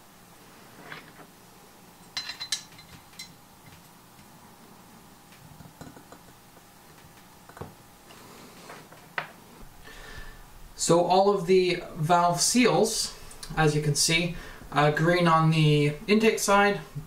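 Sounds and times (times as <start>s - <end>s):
small metal parts clinking: 2.0s - 3.4s.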